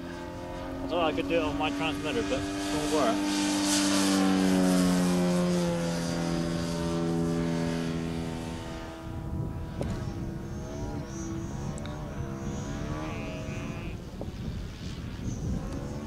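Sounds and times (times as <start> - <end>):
model plane propeller drone: 0.0 - 16.0.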